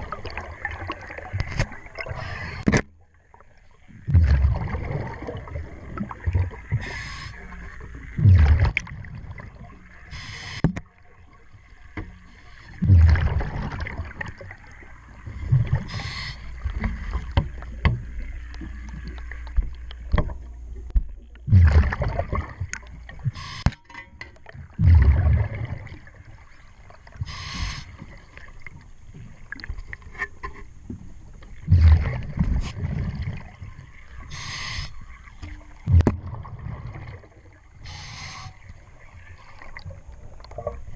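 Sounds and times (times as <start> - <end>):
exhaled bubbles rushing: 0.0 - 2.7, 3.9 - 9.8, 12.8 - 20.2, 21.4 - 23.3, 24.6 - 26.6, 31.6 - 40.9
regulator breathing hiss: 6.8 - 7.5, 10.1 - 10.6, 15.9 - 16.6, 27.2 - 28.0, 34.3 - 35.1, 37.8 - 38.6.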